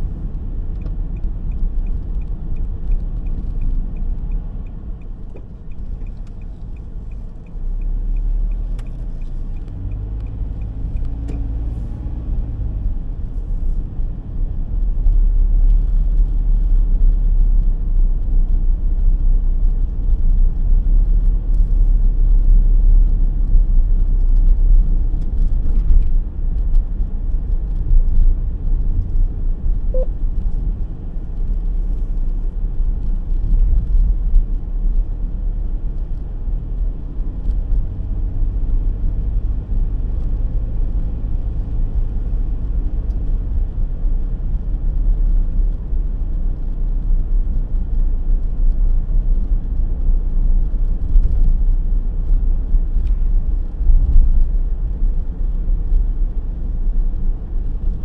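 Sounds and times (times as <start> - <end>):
car road and engine rumble: 0.0 - 58.0
light regular ticking: 0.3 - 11.6.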